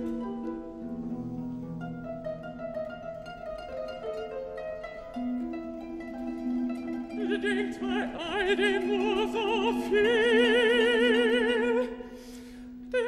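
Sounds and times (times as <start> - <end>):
operatic voice singing: 7.2 - 12.0.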